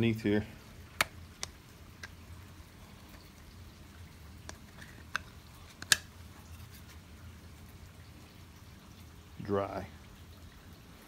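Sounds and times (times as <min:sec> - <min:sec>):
faint steady rain: 0:00.0 - 0:11.0
hands tapping plastic: 0:04.4 - 0:06.1.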